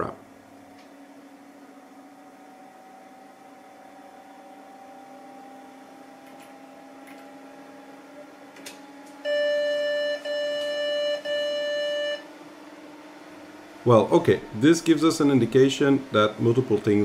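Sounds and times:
computer fans whirring: 0.0s - 17.0s
computer beeping: 9.2s - 12.3s.

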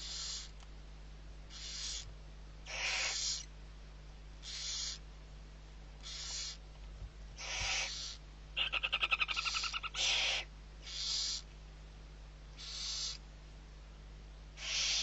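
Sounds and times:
rapid stuttering pulsed calls: 0.0s - 0.5s, 1.5s - 2.1s, 2.7s - 3.5s, 4.4s - 5.0s, 6.0s - 6.6s, 7.4s - 11.4s, 12.6s - 13.2s, 14.6s - 15.0s
owl nestlings hissing: 0.0s - 0.6s, 1.5s - 3.5s, 4.4s - 5.0s, 6.0s - 6.6s, 7.4s - 11.5s, 12.5s - 13.2s, 14.6s - 15.0s.

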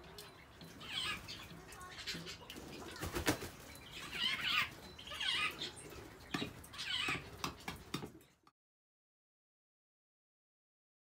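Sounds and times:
starlings calling: 0.0s - 7.8s
wings fluttering: 2.2s - 4.8s.

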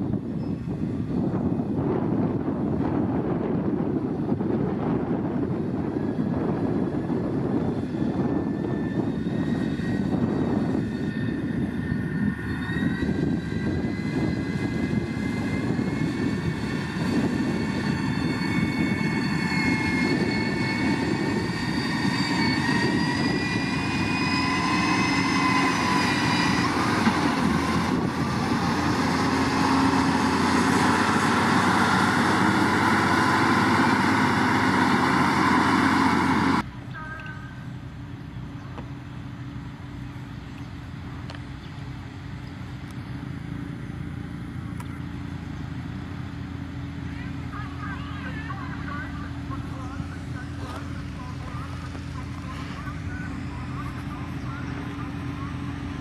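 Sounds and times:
rising whine: 0.0s - 36.9s
diesel engine running under load: 0.0s - 56.0s.

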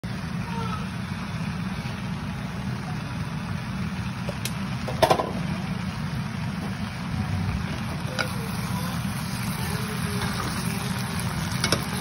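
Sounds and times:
kitchen fan humming: 0.0s - 12.0s.

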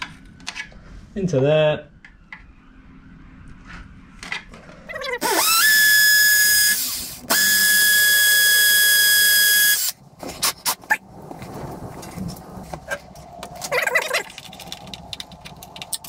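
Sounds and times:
cordless drill boring into concrete: 5.2s - 9.9s.

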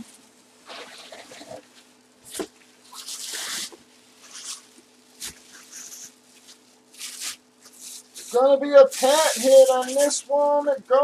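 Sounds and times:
cardboard and plastic bag rustling: 0.0s - 11.0s.

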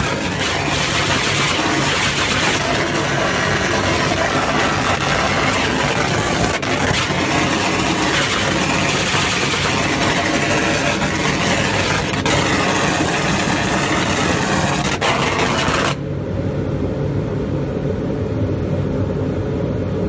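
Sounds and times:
laser engraver hissing: 0.0s - 16.0s
machine humming: 0.0s - 20.0s.

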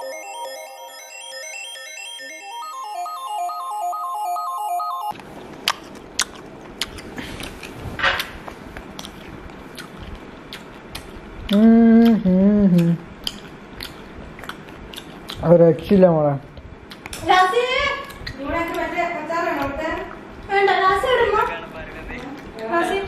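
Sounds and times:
electronic music jingle: 0.0s - 5.1s
chewing: 5.1s - 15.5s, 16.6s - 17.2s
hummed voice sound: 11.4s - 13.2s.

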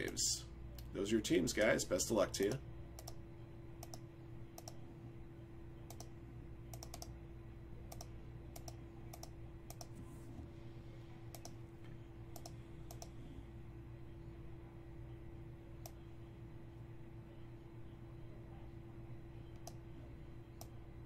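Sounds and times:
computer keys clicking: 3.0s - 3.2s, 3.8s - 4.8s, 5.9s - 7.2s, 7.9s - 10.0s, 11.3s - 11.6s, 12.3s - 13.1s, 19.5s - 19.8s.

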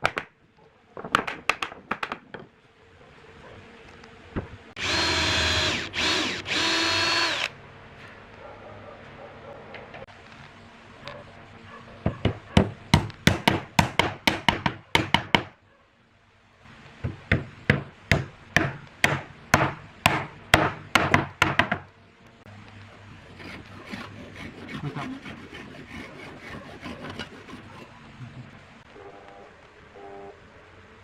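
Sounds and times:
hand saw rasping: 23.0s - 28.0s.

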